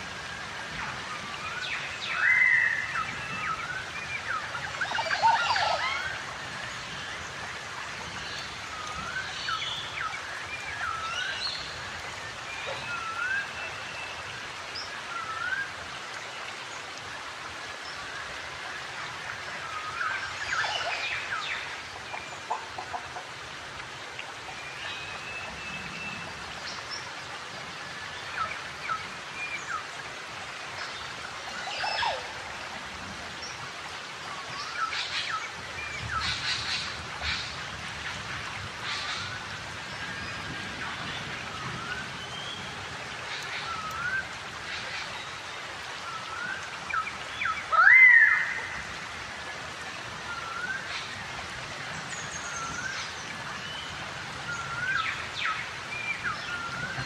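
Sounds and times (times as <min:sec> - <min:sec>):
steady background hiss: 0:00.0 - 0:57.0
forest birds calling: 0:00.3 - 0:15.8, 0:30.8 - 0:32.7, 0:34.3 - 0:49.0, 0:50.1 - 0:57.0.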